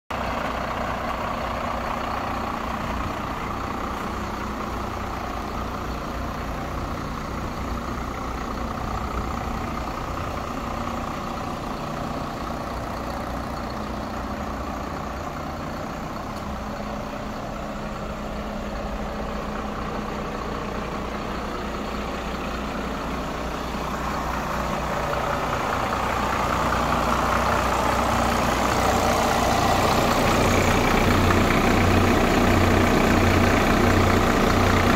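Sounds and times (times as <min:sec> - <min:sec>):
diesel truck engine idling: 0:00.1 - 0:34.9.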